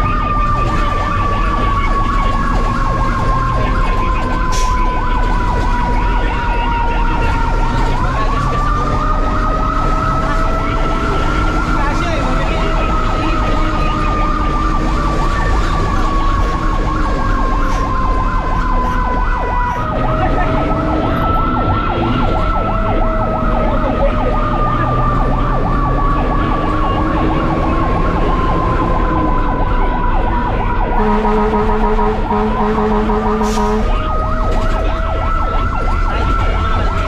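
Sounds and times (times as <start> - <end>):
fire engine siren wailing: 0.0 - 37.0
low steady horn tone: 31.0 - 34.1.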